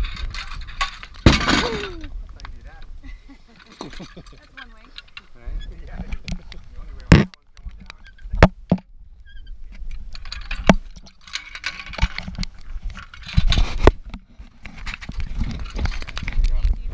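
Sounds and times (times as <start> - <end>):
metal hardware clinking: 3.6 - 5.3, 10.1 - 12.4
rubbing on microphone: 12.0 - 16.9.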